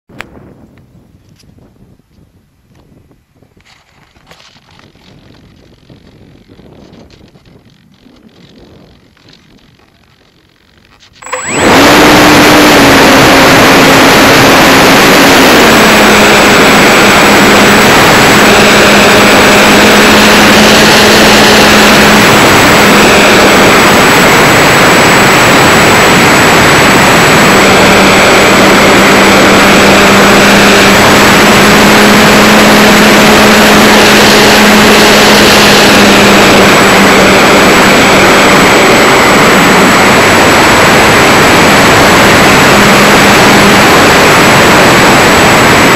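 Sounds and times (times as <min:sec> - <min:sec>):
electric motor whine: 0:04.8 - 0:45.9
rush of prop wash and wind: 0:11.2 - 0:45.9.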